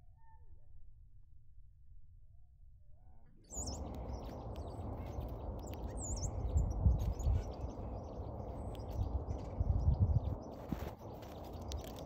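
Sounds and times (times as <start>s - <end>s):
wind rumble on microphone: 3.5s - 12.0s.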